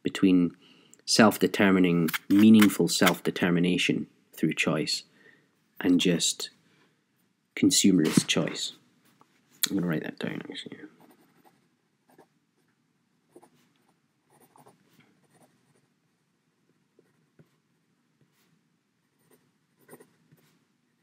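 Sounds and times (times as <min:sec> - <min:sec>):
pen scratching on paper: 0:11.0 - 0:12.3, 0:13.3 - 0:13.6, 0:14.3 - 0:15.9, 0:19.2 - 0:20.5.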